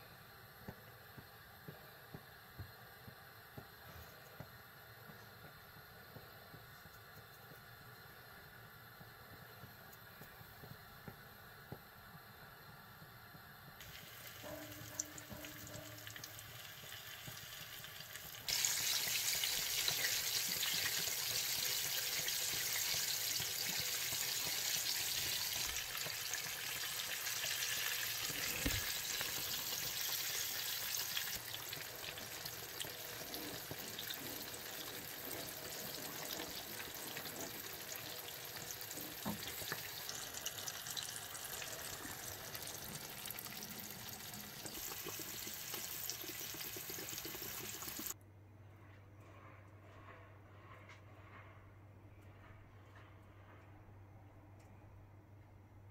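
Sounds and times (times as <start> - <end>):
hot oil sizzling: 13.8 - 48.2.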